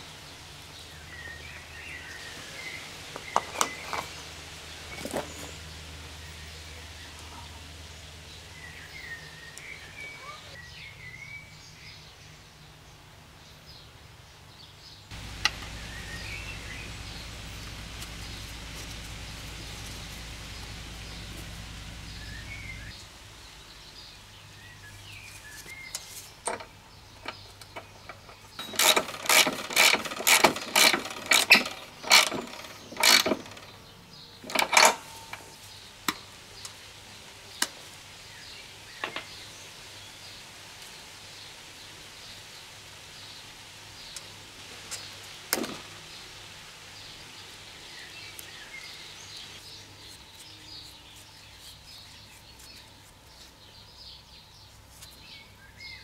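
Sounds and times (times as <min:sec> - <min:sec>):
birds chirping faintly: 0:00.0 - 0:56.0
low hum: 0:15.1 - 0:24.0.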